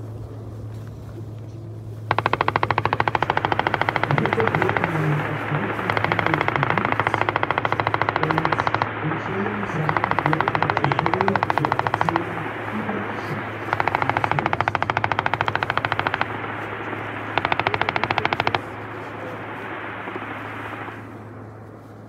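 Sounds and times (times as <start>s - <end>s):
gunshot echoes: 2.1s - 21.2s
machine gun firing bursts: 2.1s - 21.5s.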